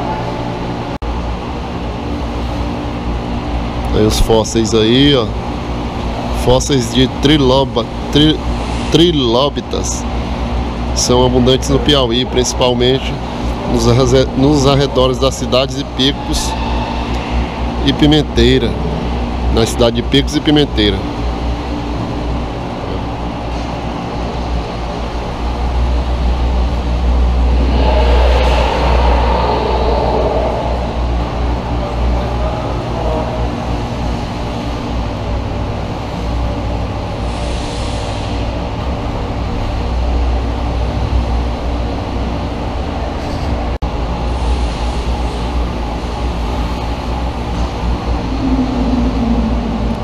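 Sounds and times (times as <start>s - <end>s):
faint hum: 0.0s - 50.0s
loud low rumble: 5.1s - 23.4s, 25.3s - 33.9s, 46.7s - 50.0s.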